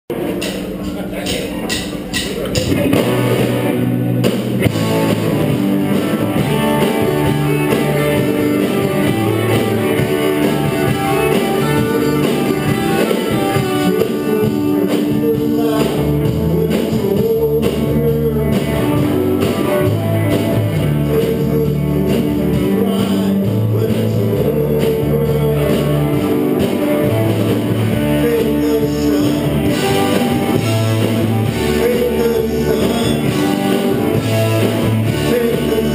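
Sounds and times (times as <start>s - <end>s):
bass guitar: 0.1s - 35.9s
drum kit: 0.1s - 35.9s
electric guitars: 0.1s - 35.9s
man singing into a microphone: 13.0s - 19.6s, 20.8s - 26.8s, 27.9s - 35.9s.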